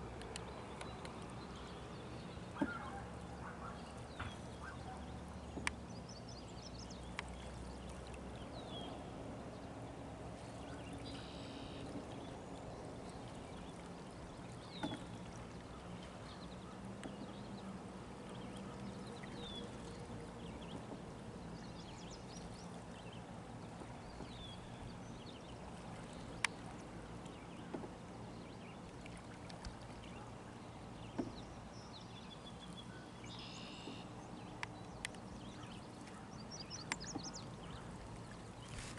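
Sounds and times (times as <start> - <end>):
paddle stroking through water: 0.0 - 6.2, 6.8 - 38.9
bird chirps: 10.8 - 11.9, 31.8 - 34.1.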